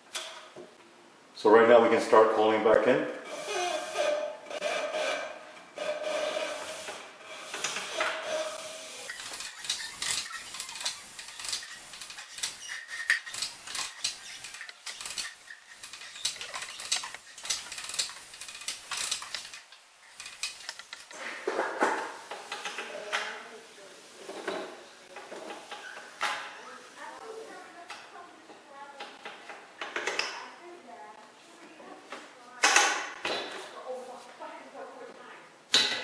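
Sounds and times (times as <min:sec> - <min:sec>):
hose rubbing: 0:03.2 - 0:21.2
hose reel clicks and knocks: 0:07.5 - 0:21.2.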